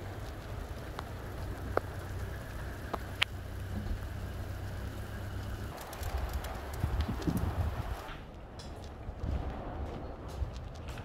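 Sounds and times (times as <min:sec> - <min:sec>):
hailstones ticking: 0:00.0 - 0:08.1
rain hissing: 0:00.0 - 0:08.1
wind rumble on microphone: 0:05.5 - 0:11.0.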